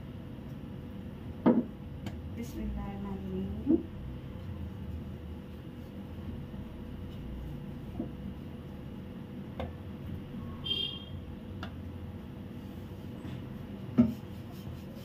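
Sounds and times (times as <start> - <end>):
rolling pin on wooden board: 13.9 - 15.0.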